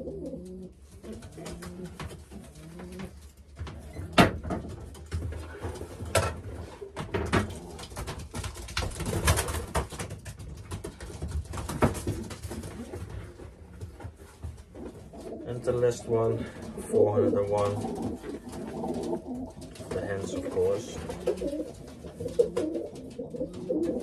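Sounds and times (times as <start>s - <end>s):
pigeons cooing: 0.0s - 4.8s, 14.6s - 24.0s
knocks and clatter: 1.0s - 15.2s.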